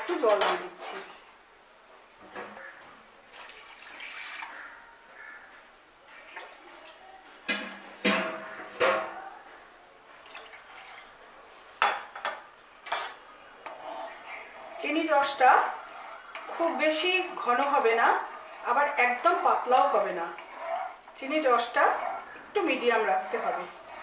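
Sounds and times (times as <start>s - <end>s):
water splashing and dripping: 3.3s - 4.6s, 10.2s - 11.1s.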